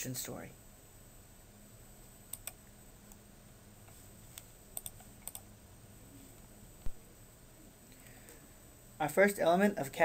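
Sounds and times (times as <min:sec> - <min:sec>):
faint steady hum: 0:00.0 - 0:10.0
computer keys clicking: 0:02.3 - 0:02.6, 0:04.4 - 0:05.5.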